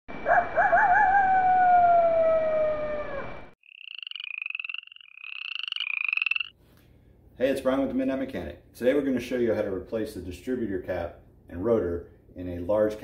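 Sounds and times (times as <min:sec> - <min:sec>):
wolf howling: 0:00.3 - 0:03.5
frogs croaking: 0:03.6 - 0:06.5.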